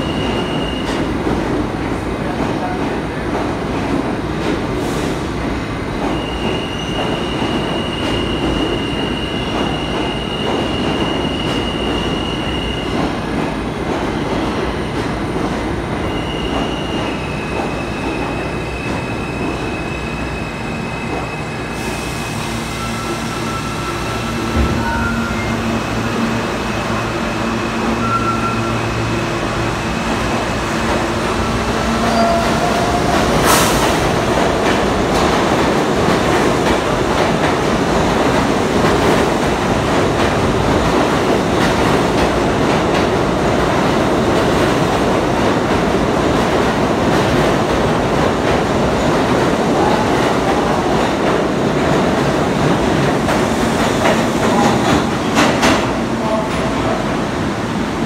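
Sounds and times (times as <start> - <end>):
train wheels rumbling on rail: 0.0 - 58.0
train hum: 7.3 - 58.0.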